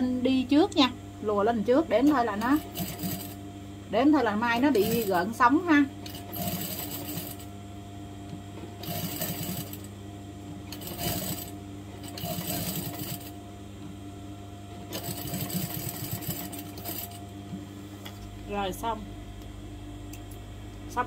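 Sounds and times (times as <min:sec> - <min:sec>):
steady low hum: 0:00.0 - 0:21.0
sewing machine stitching: 0:06.1 - 0:07.4, 0:08.8 - 0:09.8, 0:10.7 - 0:13.3, 0:14.9 - 0:17.2.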